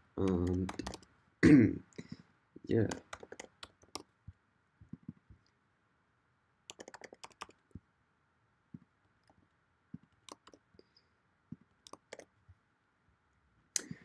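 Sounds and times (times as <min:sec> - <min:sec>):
faint keyboard typing: 0:00.0 - 0:01.1, 0:02.0 - 0:05.5, 0:06.7 - 0:07.8, 0:08.8 - 0:10.9, 0:11.5 - 0:12.4.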